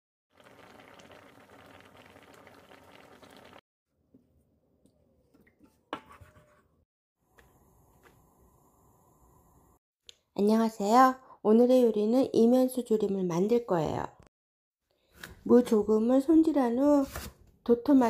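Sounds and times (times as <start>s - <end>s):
liquid bubbling in a frying pan: 0.3s - 3.6s.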